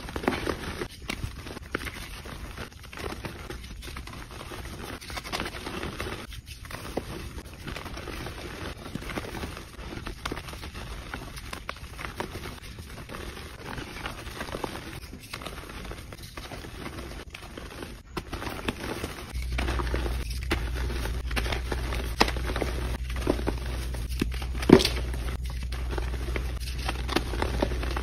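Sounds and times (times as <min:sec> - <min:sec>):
hands crushing chalk: 0:00.0 - 0:28.0
low steady hum: 0:18.7 - 0:28.0.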